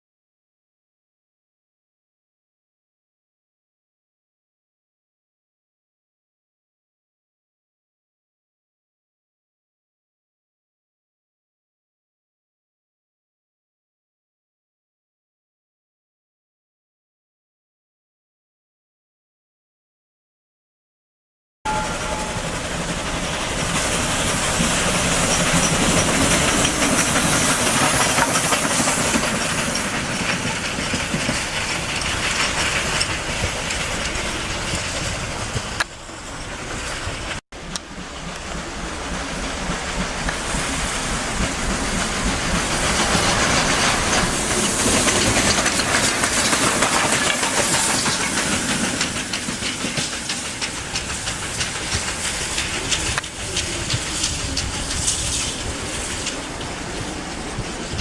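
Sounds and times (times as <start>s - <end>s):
steam hissing: 21.7s - 58.0s
train running: 21.7s - 58.0s.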